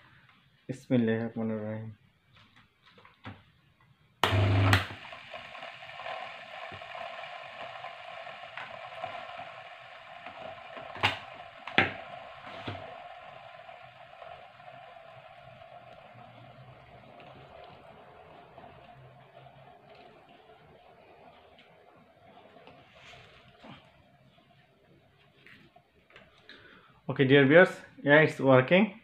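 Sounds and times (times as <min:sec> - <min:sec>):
washing machine motor humming: 0:04.2 - 0:25.2.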